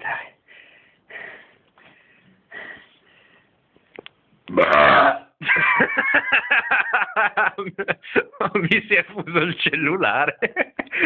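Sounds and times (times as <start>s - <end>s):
faint breathing: 0.0s - 3.7s
man burping loudly: 4.5s - 5.4s.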